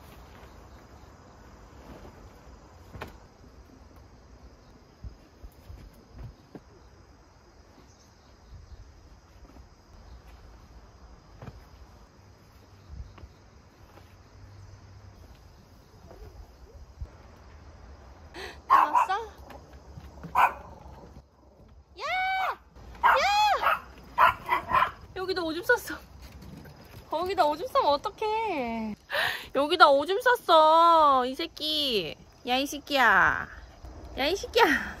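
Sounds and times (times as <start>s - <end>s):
high insect chorus: 0.0s - 35.0s.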